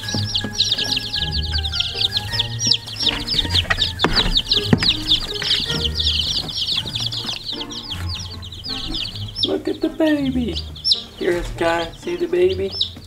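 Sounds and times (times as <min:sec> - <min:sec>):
sharp knocks: 0:00.0 - 0:07.6
baby chicks peeping: 0:00.0 - 0:13.0.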